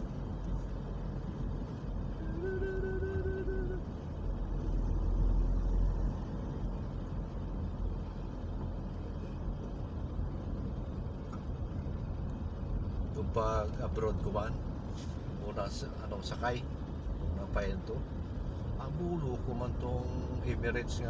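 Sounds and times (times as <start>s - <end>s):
car engine and tyres rumbling: 0.0s - 21.0s
short steady tone: 2.1s - 3.9s.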